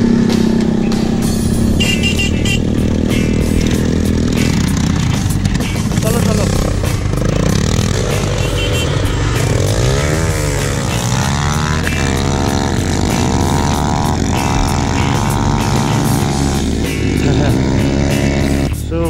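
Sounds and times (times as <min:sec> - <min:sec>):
motorcycle engines accelerating: 0:00.0 - 0:19.0.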